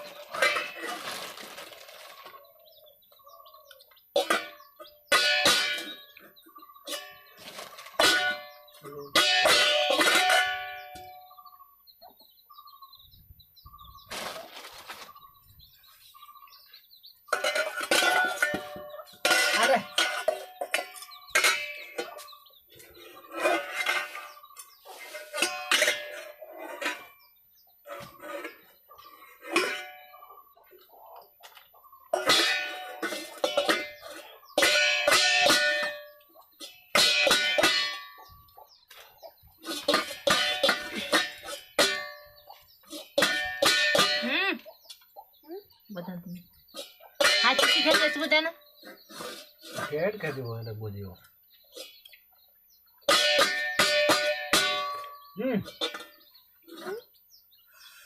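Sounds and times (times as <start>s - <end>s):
metal pots clanking and ringing: 0.0s - 1.3s, 4.1s - 11.4s, 17.3s - 22.5s, 23.3s - 27.2s, 29.4s - 30.2s, 32.1s - 38.4s, 39.7s - 44.6s, 46.8s - 48.6s, 53.0s - 57.0s.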